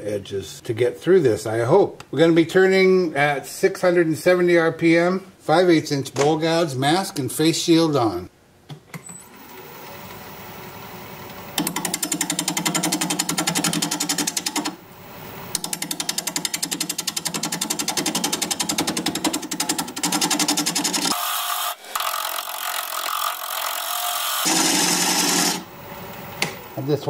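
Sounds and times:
gouge cutting wood chatter: 0:15.6 - 0:25.6
wood lathe spinning: 0:15.7 - 0:25.7.

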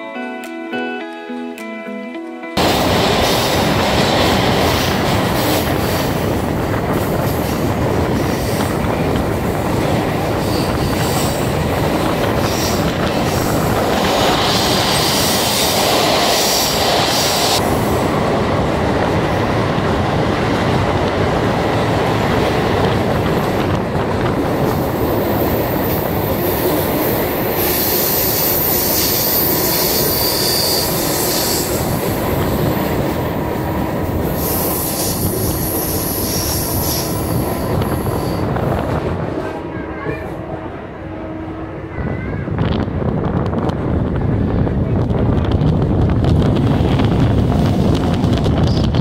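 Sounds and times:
train wheels rumbling on rails: 0:02.6 - 0:49.0
high-pitched wheel squeal: 0:28.6 - 0:31.6.

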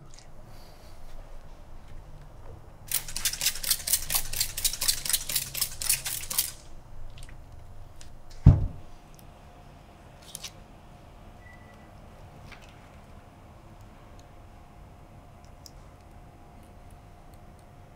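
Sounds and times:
spray bottle squirting: 0:02.9 - 0:06.6
heavy thump: 0:08.4 - 0:08.9.

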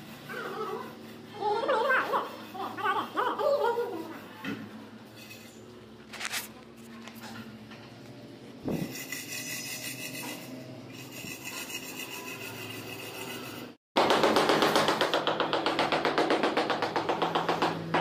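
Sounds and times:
trowel scraping wet mortar: 0:08.7 - 0:13.8.

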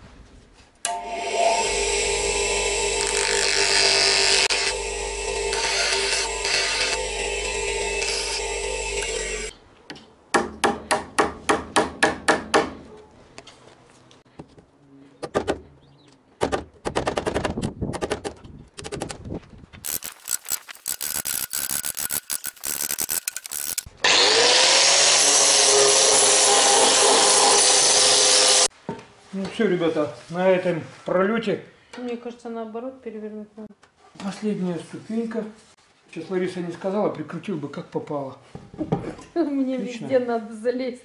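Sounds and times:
power tool whining: 0:00.9 - 0:09.5, 0:19.8 - 0:28.7
cordless drill driving screws: 0:05.4 - 0:09.5, 0:19.8 - 0:25.6.

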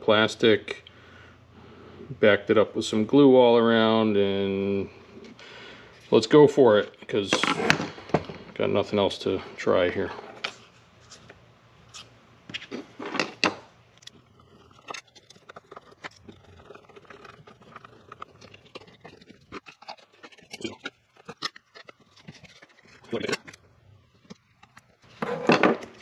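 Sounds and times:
small plastic parts clicking and scraping: 0:11.9 - 0:26.0.

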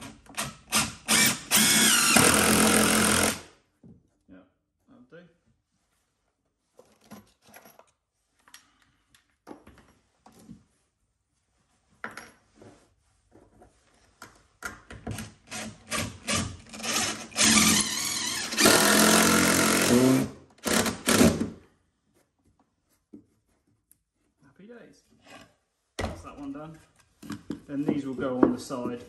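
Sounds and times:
drill driving screw: 0:00.0 - 0:03.5, 0:15.2 - 0:21.5.

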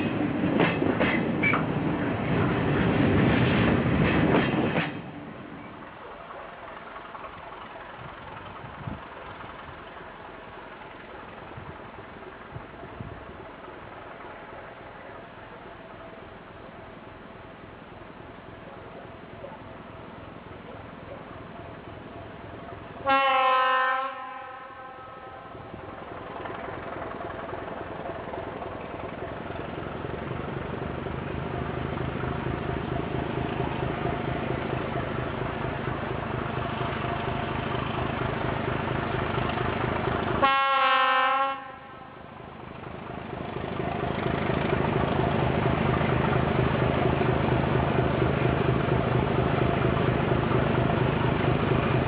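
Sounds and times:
diesel locomotive engine: 0:00.0 - 0:52.0
train horn blast: 0:23.0 - 0:25.7, 0:40.4 - 0:42.3.

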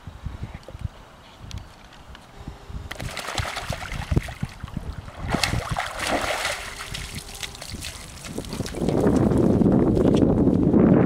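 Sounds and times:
dog splashing through water: 0:03.0 - 0:09.3.

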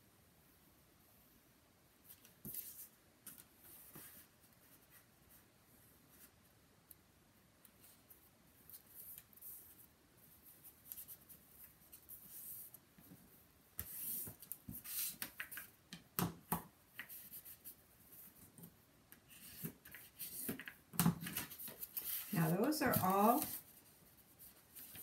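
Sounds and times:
paper rustle: 0:19.3 - 0:25.0.

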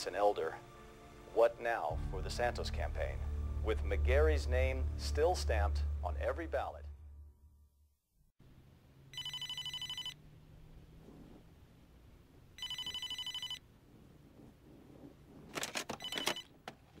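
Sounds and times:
telephone ringing: 0:09.1 - 0:10.2, 0:12.6 - 0:13.6, 0:15.9 - 0:16.6
receiver clatter: 0:15.4 - 0:17.0.

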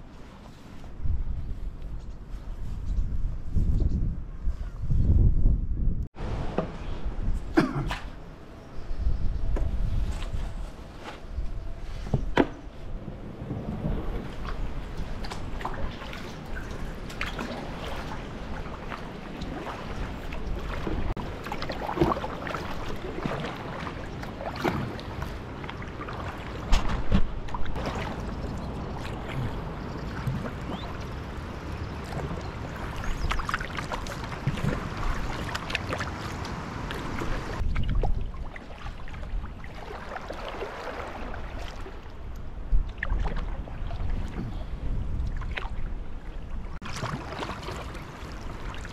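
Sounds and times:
wind rumble on microphone: 0:00.0 - 0:48.9
water lapping against hull: 0:11.6 - 0:48.9
kayak paddle splashing: 0:13.4 - 0:48.9.

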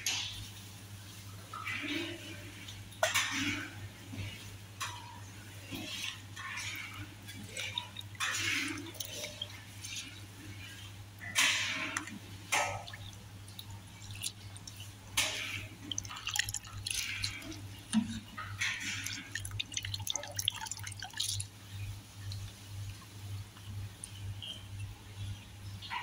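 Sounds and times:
liquid splashes and drips: 0:01.1 - 0:24.6
metal spoon stirring rice in pot: 0:03.1 - 0:20.4.

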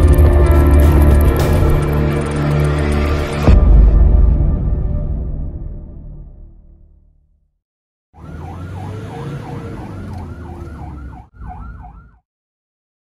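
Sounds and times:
ambulance siren yelping: 0:08.2 - 0:12.2
engine and road rumble: 0:08.2 - 0:12.2.

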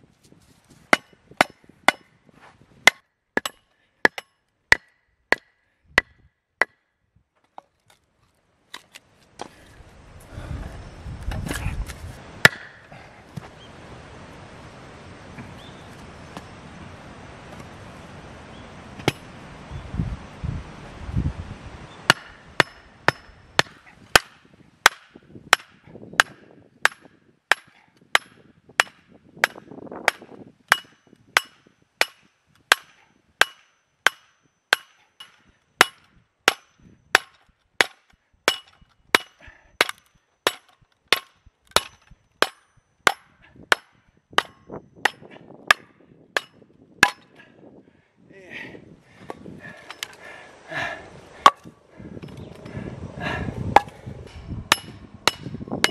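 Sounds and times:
log splitting: 0:11.2 - 0:13.5, 0:22.1 - 0:47.4.

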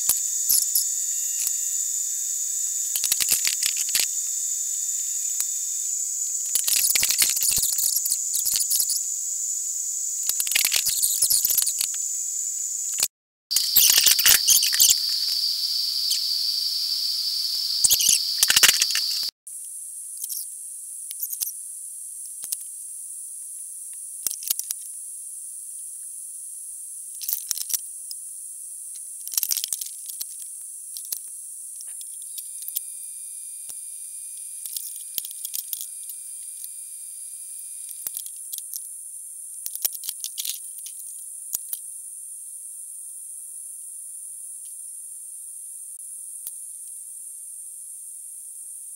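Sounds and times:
welding arc whine: 0:00.0 - 0:19.3
sizzling hiss and crackles: 0:00.0 - 0:19.8.

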